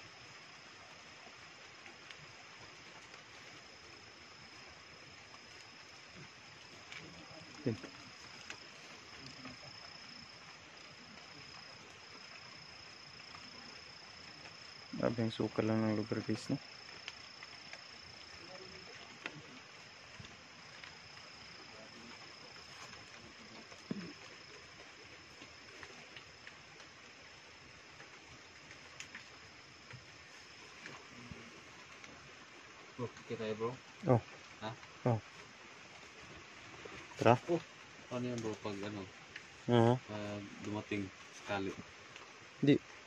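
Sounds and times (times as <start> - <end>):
crickets trilling: 0.0 - 43.0
night insects droning: 0.0 - 43.0
soft background hiss: 0.0 - 43.0
light ticks: 27.9 - 31.1.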